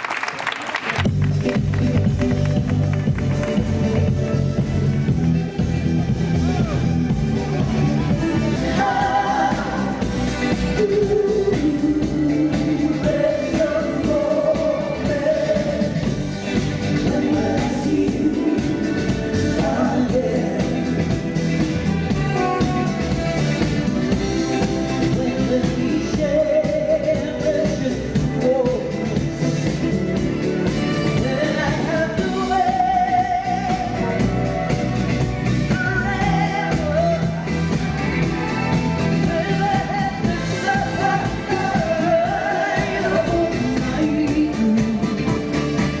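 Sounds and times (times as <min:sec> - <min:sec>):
live band playing: 0:00.8 - 0:46.0
female vocal trio singing: 0:08.6 - 0:16.0, 0:17.0 - 0:21.0, 0:39.2 - 0:45.0.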